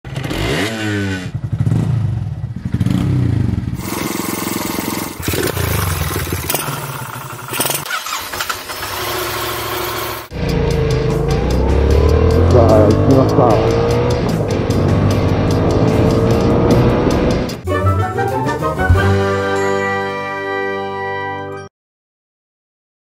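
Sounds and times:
motorcycle engines running: 0.1s - 17.6s.

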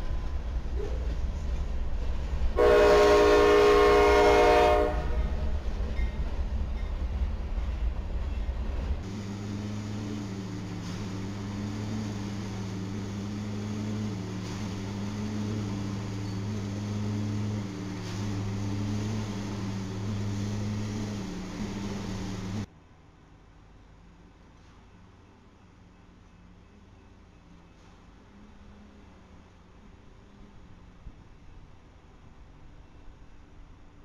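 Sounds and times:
freight train rumbling: 0.0s - 22.7s
locomotive air horn blast: 2.6s - 5.6s, 13.8s - 22.7s.

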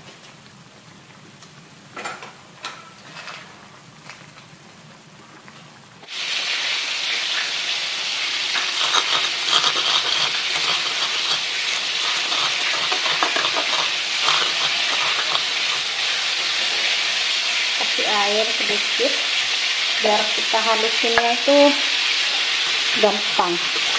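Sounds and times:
soup simmering: 0.0s - 23.9s
pestle grinding in mortar: 8.5s - 16.6s, 23.3s - 23.9s.

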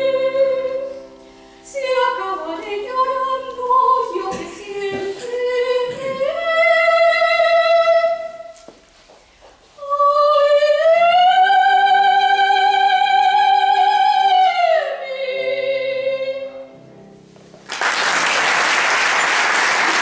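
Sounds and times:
soprano singing: 0.0s - 8.7s, 9.6s - 16.8s
audience applause: 17.7s - 20.0s.

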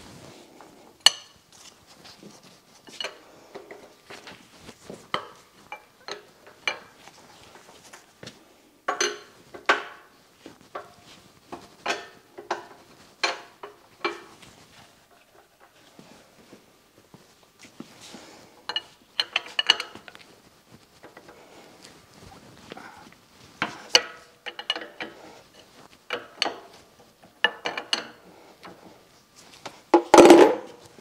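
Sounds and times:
tools clanking on metal: 5.1s - 7.0s, 8.9s - 10.1s, 11.6s - 14.4s, 18.7s - 20.2s, 23.6s - 28.2s.

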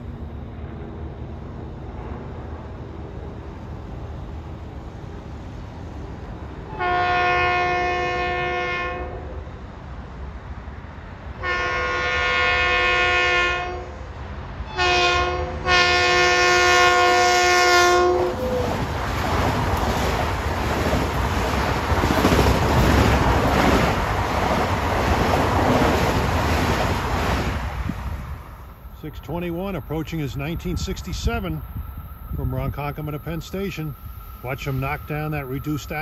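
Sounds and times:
train horn blasts: 6.7s - 9.4s, 11.4s - 18.8s
train wheels rushing on rails: 14.1s - 36.0s.

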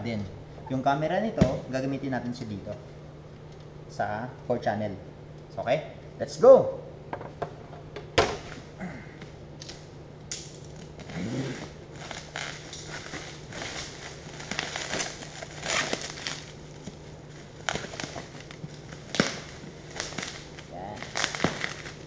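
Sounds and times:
plastic wrapping crinkling: 10.6s - 22.0s.

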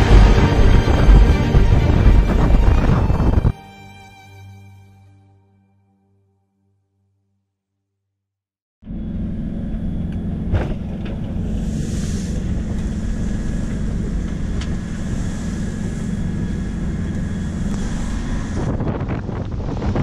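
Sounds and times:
wind buffeting microphone: 0.0s - 3.6s, 9.9s - 20.0s
spray and rushing water: 11.6s - 20.0s.

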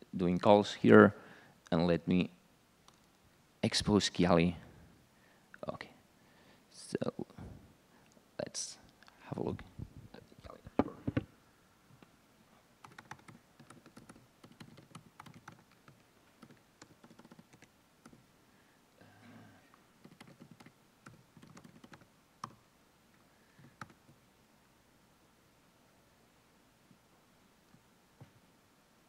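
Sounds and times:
typing on a keyboard: 12.8s - 18.2s, 20.0s - 22.6s, 23.6s - 24.0s.

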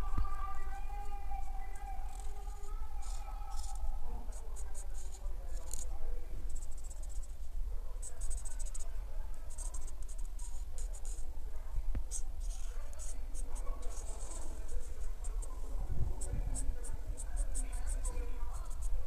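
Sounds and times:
marker scratching on paper: 2.0s - 5.9s, 6.5s - 7.4s, 8.0s - 11.3s, 12.1s - 19.0s.

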